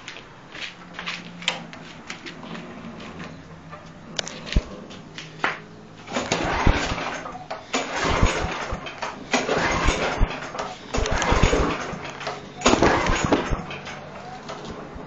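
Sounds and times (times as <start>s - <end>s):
mower engine cranked by recoil starter: 6.0s - 14.8s.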